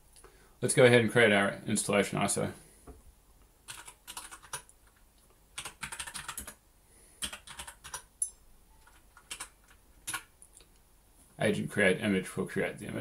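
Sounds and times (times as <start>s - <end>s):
keyboard typing: 3.7s - 5.0s, 5.6s - 6.6s, 7.2s - 8.1s, 8.7s - 10.3s.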